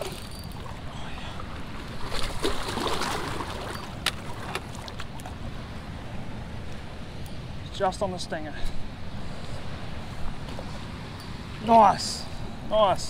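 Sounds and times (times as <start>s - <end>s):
fish splashing in water: 0.0s - 5.1s
river water rushing: 0.0s - 7.6s.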